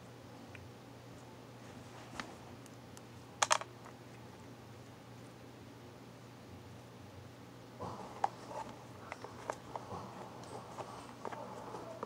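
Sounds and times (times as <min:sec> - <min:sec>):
low steady hum: 0:00.0 - 0:12.0
rustling handling noise: 0:01.1 - 0:02.6, 0:07.8 - 0:12.0.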